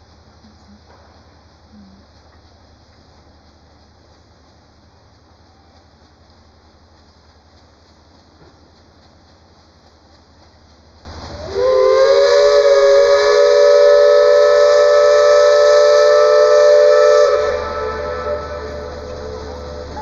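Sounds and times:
hiss of steam: 0.0 - 20.0
steam whistle blast: 11.3 - 20.0.

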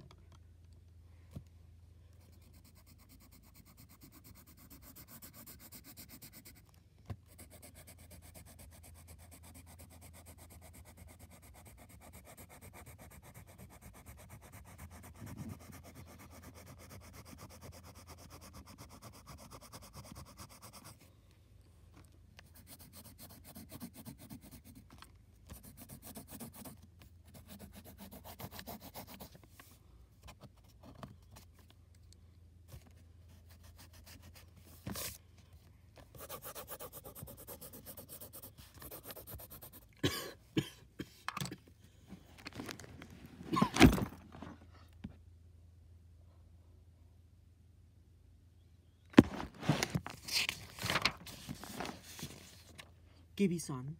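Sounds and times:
low steady hum: 0.0 - 53.9
pencil scratching on paper: 2.3 - 21.1, 22.4 - 29.4, 36.1 - 40.1.

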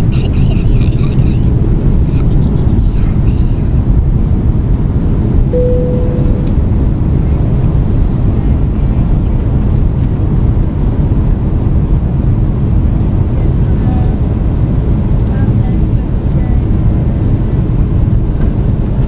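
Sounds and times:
jet cabin engine rumble: 0.0 - 19.0
brief steady tone: 5.6 - 6.8.

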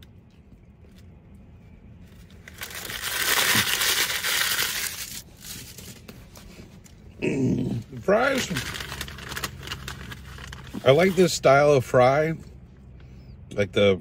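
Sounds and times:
paper packaging crinkling: 2.1 - 6.4, 8.1 - 11.4.

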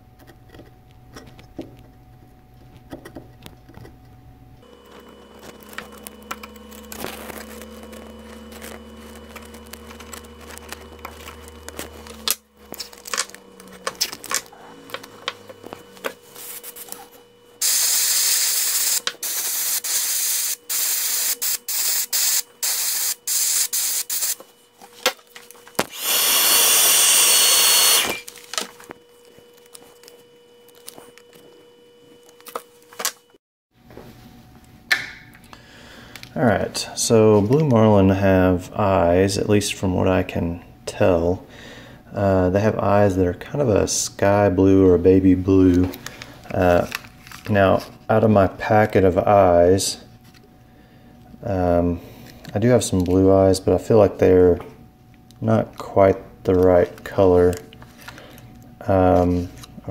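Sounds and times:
low steady hum: 0.0 - 19.5
airbrush hissing: 17.6 - 24.4, 25.9 - 28.2.

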